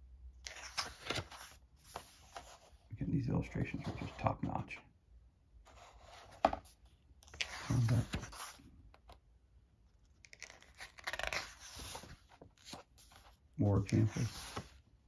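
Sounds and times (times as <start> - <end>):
book pages rustling: 0.4 - 2.9, 5.7 - 9.2, 9.9 - 14.9.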